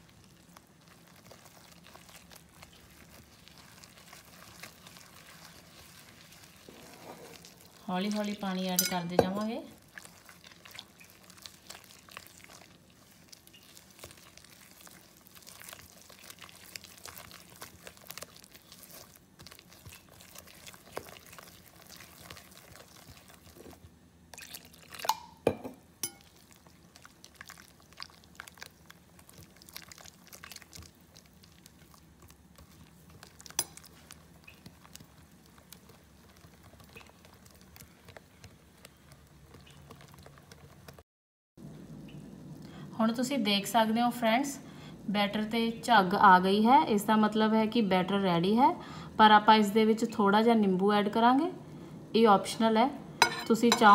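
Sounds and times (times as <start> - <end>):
whisk beating batter in bowl: 0.1 - 23.9, 26.0 - 41.0.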